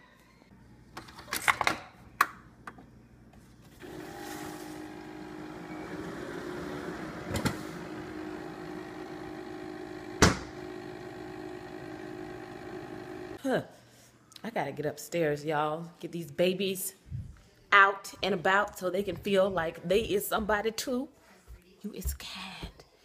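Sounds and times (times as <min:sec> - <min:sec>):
coffee maker pump humming: 0:03.8 - 0:13.4.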